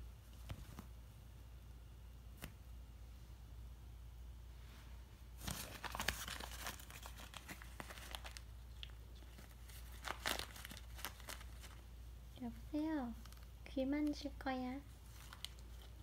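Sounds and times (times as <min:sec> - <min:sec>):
cloth rustling and crinkling: 0:05.3 - 0:11.9, 0:14.9 - 0:16.0.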